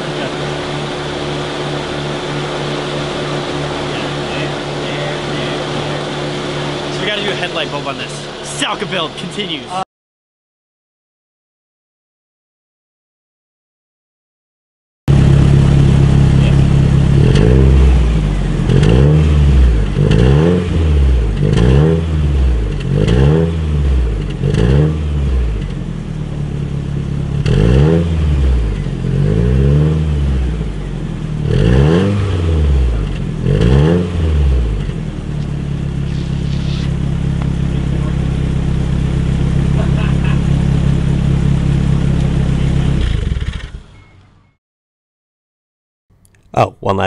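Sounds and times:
car engine idling: 0.0 - 9.8, 15.1 - 20.2, 22.2 - 27.6, 28.3 - 29.4, 30.1 - 31.5, 34.2 - 44.5
engine revving in quick blips: 15.1 - 25.8, 27.3 - 30.8, 31.4 - 44.6.

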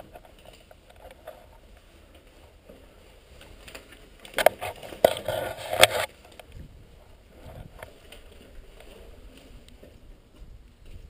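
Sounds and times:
grinding debris: 0.0 - 10.1.

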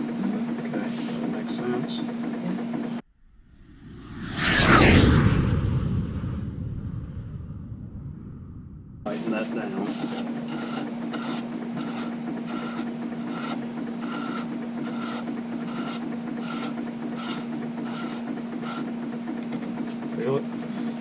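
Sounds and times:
small machine humming and whirring: 9.1 - 21.0.

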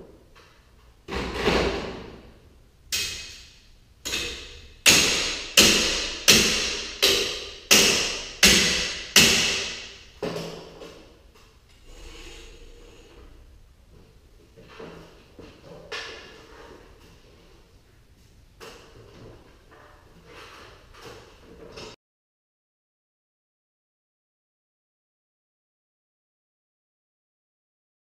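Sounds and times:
metal striking spring shaft: 2.9 - 10.0.

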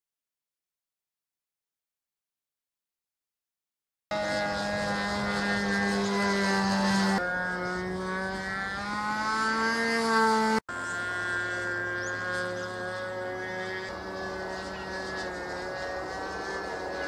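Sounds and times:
model plane engine running: 4.1 - 17.0.

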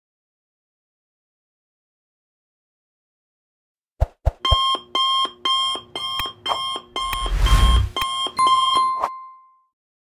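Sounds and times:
electronic alarm ringing: 4.4 - 9.6
clicks: 5.2 - 8.4.

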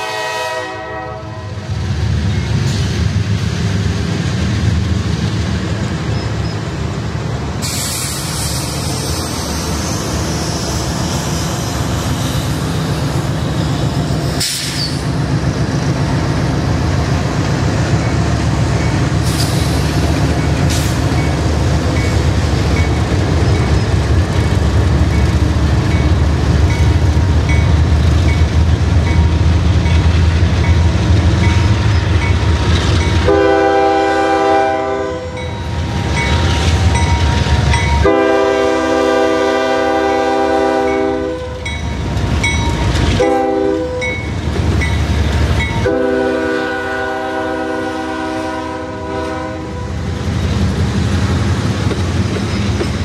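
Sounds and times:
locomotive horn blasts: 0.0 - 1.6, 33.2 - 35.5, 38.0 - 41.7, 43.2 - 44.2, 45.7 - 50.0
diesel locomotive engines rumbling: 0.0 - 53.0
freight cars clattering on rails: 50.2 - 53.0.

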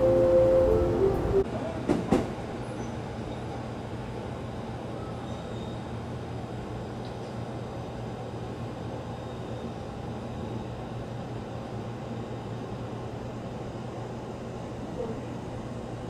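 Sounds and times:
locomotive cooling blowers humming: 0.0 - 1.4.

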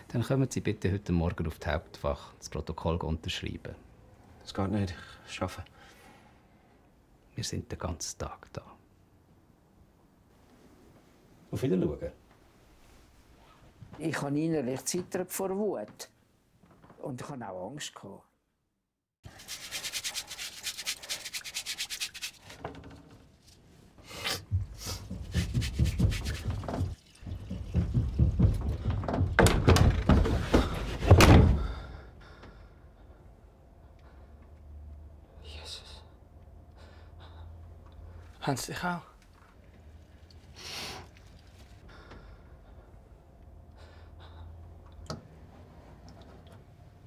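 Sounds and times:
person breathing: 5.0 - 6.8, 24.0 - 25.1, 30.6 - 34.6, 35.3 - 38.3, 41.8 - 44.8
hands scrubbing together: 19.3 - 22.6, 24.7 - 28.1
low irregular thumps: 24.5 - 31.8.

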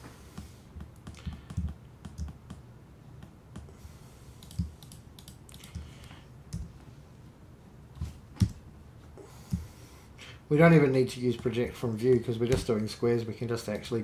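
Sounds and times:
computer keyboard typing: 0.9 - 2.6, 4.4 - 6.7.

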